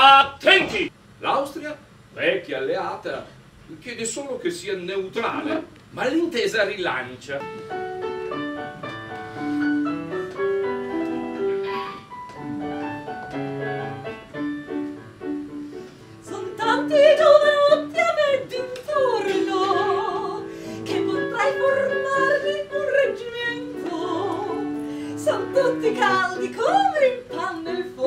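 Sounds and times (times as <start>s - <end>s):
keyboard playing piano tune: 7.4s - 16.6s
woman singing operatically: 16.3s - 28.0s.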